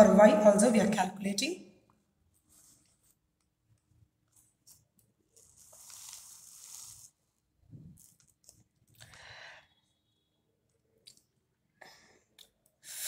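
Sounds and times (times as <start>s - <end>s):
paper sliding across a table: 5.4s - 7.2s.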